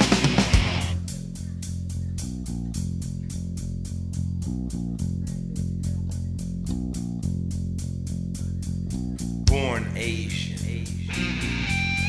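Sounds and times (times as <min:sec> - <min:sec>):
rock music with guitar riff: 0:00.0 - 0:01.0, 0:09.5 - 0:12.0.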